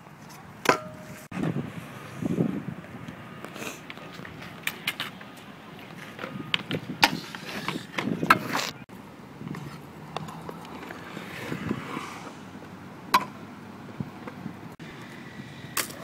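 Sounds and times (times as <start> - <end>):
scooter wheels rolling on concrete: 0.0 - 16.0
scooter clacking on ground: 3.4 - 8.8, 9.5 - 11.2.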